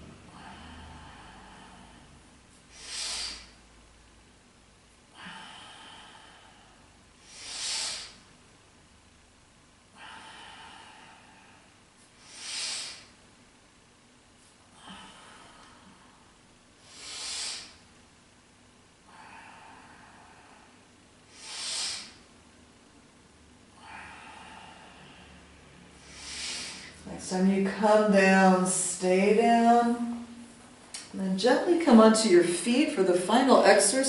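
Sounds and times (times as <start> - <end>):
person breathing deeply through nose: 0.3 - 3.6, 5.2 - 8.2, 10.0 - 13.2, 16.8 - 17.9, 19.1 - 22.3, 23.8 - 27.0.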